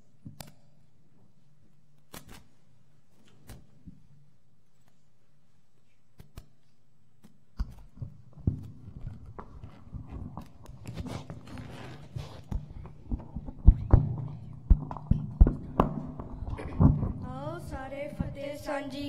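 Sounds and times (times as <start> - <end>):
low steady hum: 3.8 - 19.0
footsteps: 7.8 - 18.5.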